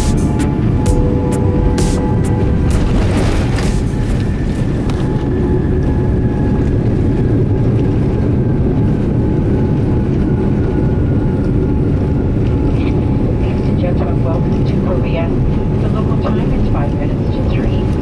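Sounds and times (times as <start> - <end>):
low rumble of wheels and engines: 0.0 - 18.0.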